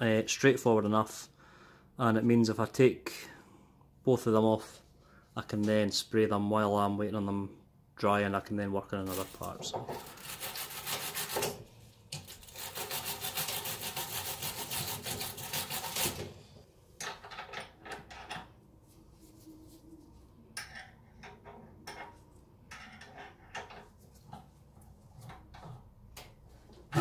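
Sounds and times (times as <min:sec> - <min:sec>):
wire brush scrubbing metal: 0:10.0 - 0:11.5, 0:12.3 - 0:16.2.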